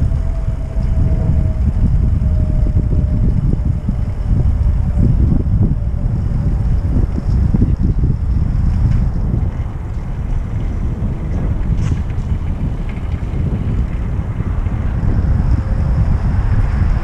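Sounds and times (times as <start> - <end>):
wheels rolling noise: 0.0 - 17.0
wind buffeting microphone: 0.0 - 17.0.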